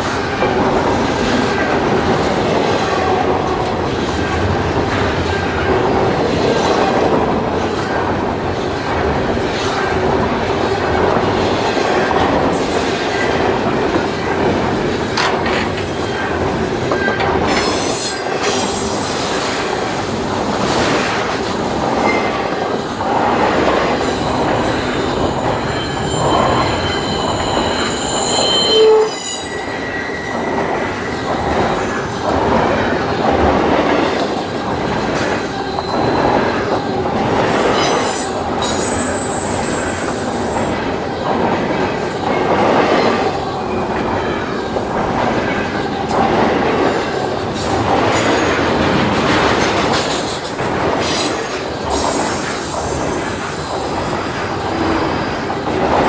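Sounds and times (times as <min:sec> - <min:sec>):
train wheels rumbling on rails: 0:00.0 - 0:56.0
clicking over rail joints: 0:14.9 - 0:17.8
high-pitched wheel squeal: 0:25.5 - 0:31.2.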